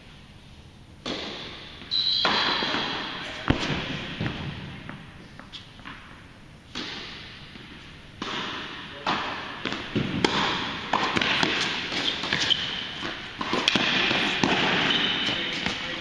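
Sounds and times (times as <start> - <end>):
tennis balls struck by rackets: 1.0 - 5.0, 6.7 - 15.9
tennis balls bouncing on court: 6.7 - 16.0.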